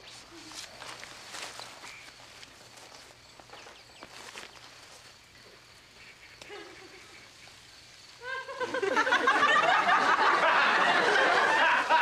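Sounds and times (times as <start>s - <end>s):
studio audience laughter: 8.4s - 12.0s.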